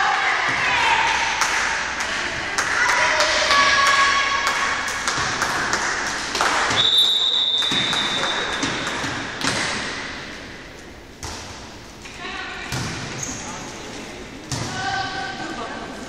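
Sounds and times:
volleyball hits and thuds: 5.0 - 10.3, 11.2 - 11.8, 12.7 - 13.3, 14.4 - 15.0
referee's whistle: 6.8 - 8.7.

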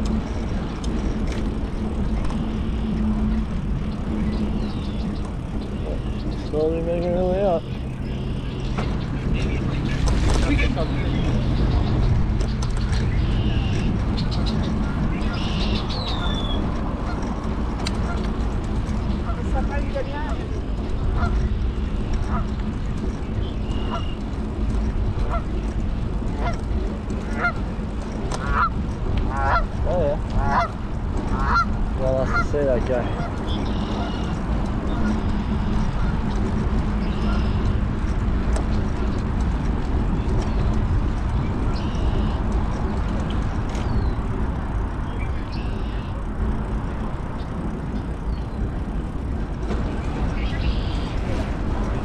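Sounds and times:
bicycle ride rumble: 0.0 - 52.0
road traffic: 0.0 - 52.0
wind noise on microphone: 0.0 - 52.0
geese honking: 19.2 - 21.5, 22.1 - 22.6, 23.4 - 24.3, 26.3 - 26.6, 27.2 - 27.6, 28.4 - 36.2, 37.0 - 37.7.

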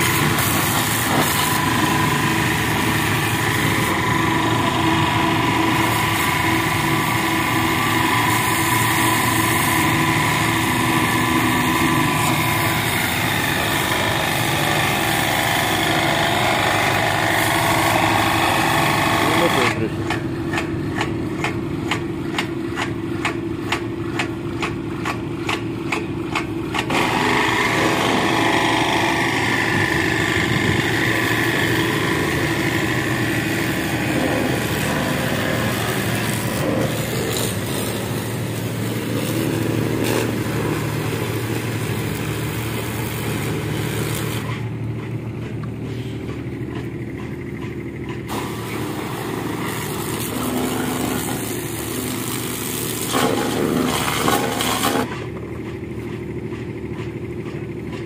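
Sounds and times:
water jet spraying on metal: 0.0 - 19.8, 26.9 - 44.7, 48.3 - 55.1
pressure washer humming: 0.0 - 58.0.

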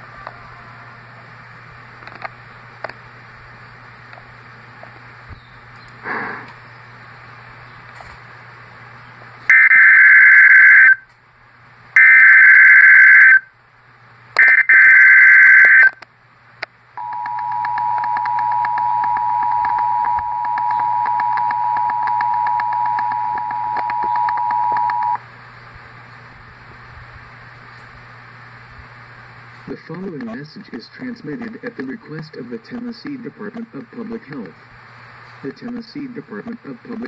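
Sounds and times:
two-tone attention signal: 17.0 - 25.2
warbling data tones: 17.0 - 25.2.

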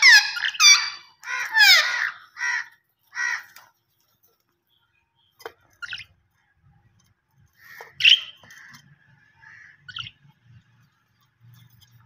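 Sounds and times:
budgerigars calling: 0.0 - 3.5, 7.6 - 8.8, 9.4 - 10.2.

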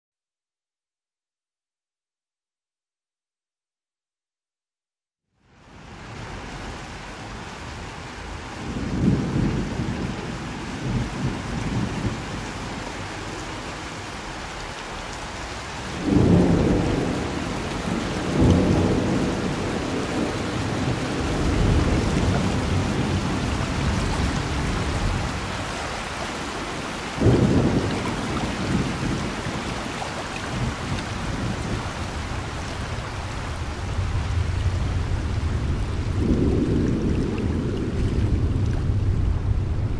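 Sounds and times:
steady rain: 5.4 - 39.9
thunder rolling: 15.9 - 25.7, 27.2 - 39.9.

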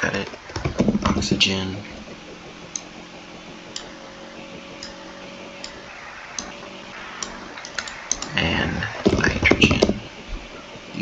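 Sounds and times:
faint steady hum: 0.0 - 11.0
computer mouse clicks: 7.2 - 8.4
quick keyboard typing: 7.2 - 11.0.

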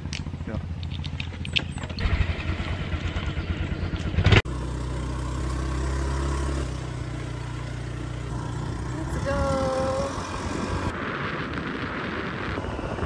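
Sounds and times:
scooter engine revving: 1.0 - 10.9.

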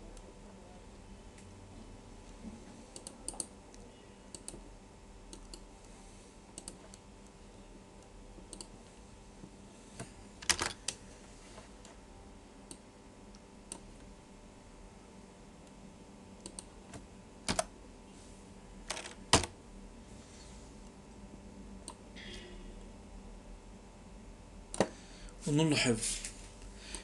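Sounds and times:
faint steady hum: 0.0 - 27.0.

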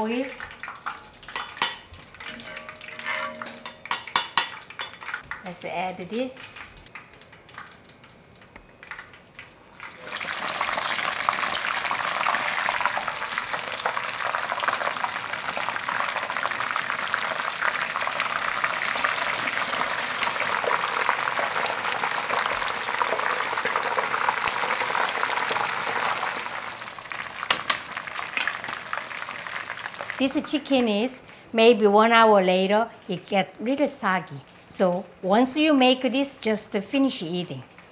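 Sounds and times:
chicken sizzling in hot oil: 0.0 - 30.3.

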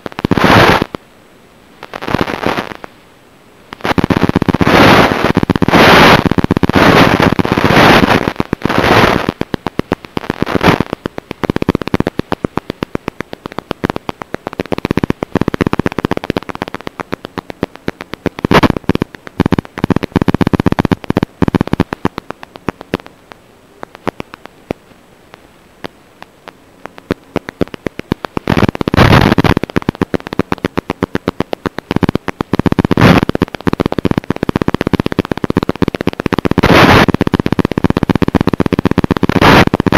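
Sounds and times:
rapid clicks: 0.0 - 1.0, 1.8 - 3.0, 3.7 - 39.9
radio static crackling: 0.0 - 39.9
loud hissing bursts: 3.8 - 9.4.

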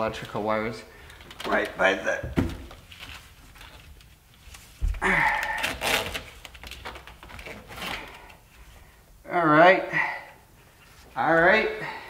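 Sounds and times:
hands rustling wiring: 0.0 - 9.0.

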